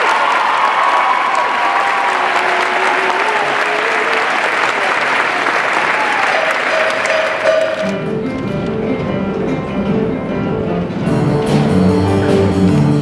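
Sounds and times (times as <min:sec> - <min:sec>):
audience applauding: 0:00.0 - 0:08.0
people cheering: 0:00.0 - 0:08.0
instrumental music with steady beat: 0:07.0 - 0:13.0.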